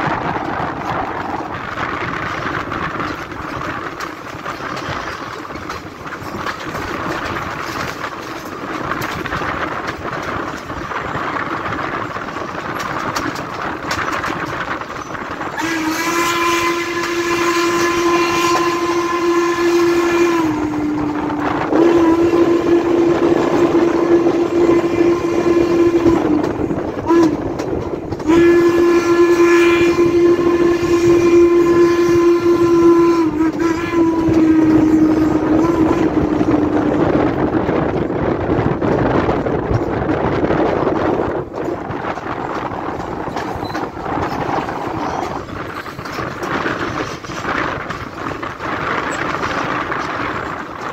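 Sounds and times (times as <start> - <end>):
steam locomotive running: 0.0 - 50.9
steam whistle blasts: 15.5 - 26.4, 27.0 - 27.4, 28.2 - 36.7.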